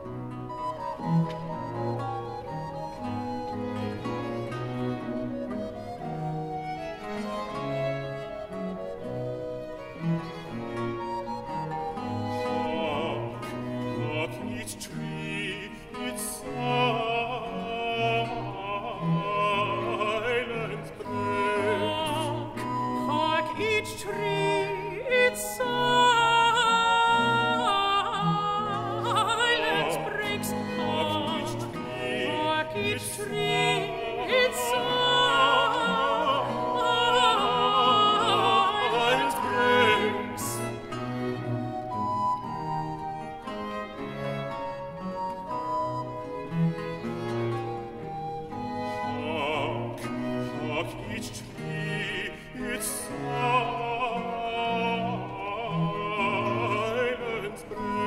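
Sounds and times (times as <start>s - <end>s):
bowed strings continuo: 0.0s - 58.0s
baritone singing: 11.3s - 42.7s, 47.8s - 58.0s
countertenor singing: 12.3s - 41.0s, 49.0s - 58.0s.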